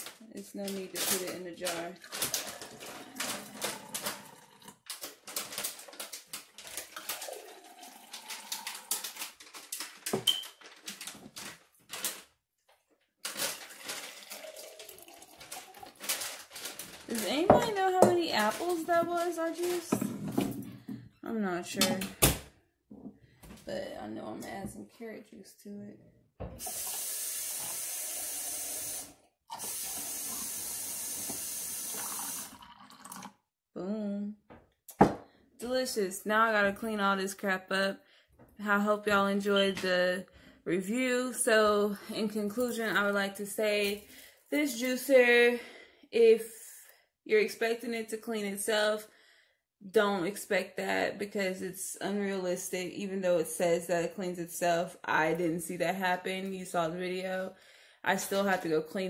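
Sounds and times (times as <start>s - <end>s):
juice splashing and trickling: 2.0s - 9.6s, 13.3s - 16.9s, 31.8s - 33.4s
running liquid hissing: 26.6s - 33.3s.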